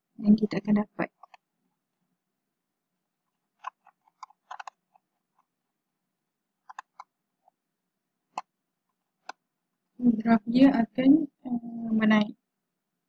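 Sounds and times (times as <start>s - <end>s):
computer mouse clicks: 3.6s - 5.4s, 6.6s - 7.1s, 8.3s - 8.5s, 9.2s - 9.4s.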